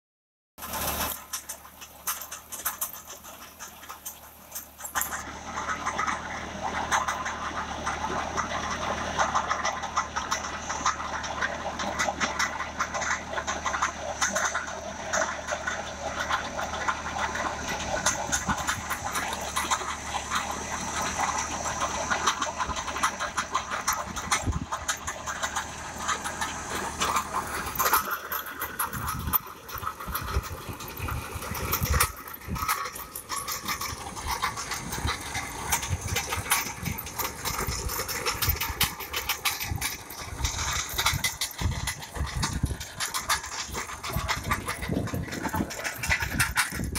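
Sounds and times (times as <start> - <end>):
clods and stones rattling: 0.6 - 46.9
tractor engine under load: 0.6 - 46.9.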